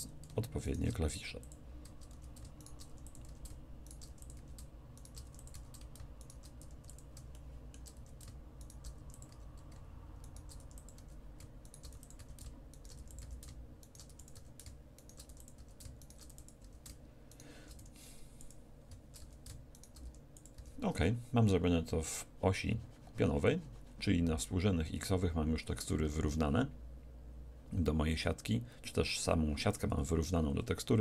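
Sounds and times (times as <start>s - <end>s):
low steady hum: 0.0s - 31.0s
keyboard and mouse clicking: 1.4s - 20.8s.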